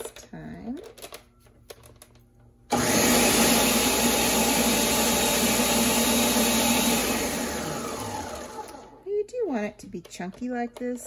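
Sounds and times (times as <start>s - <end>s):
blender running: 2.7s - 9.0s.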